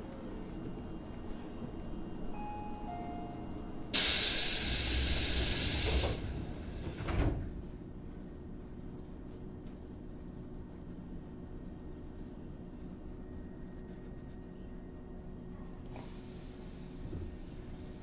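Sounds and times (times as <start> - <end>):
train interior hum: 0.0 - 18.0
compressed air hiss: 4.0 - 6.2.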